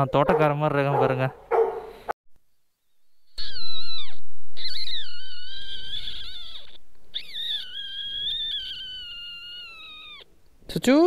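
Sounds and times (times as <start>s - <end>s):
animal crying high-pitched: 3.4s - 10.3s.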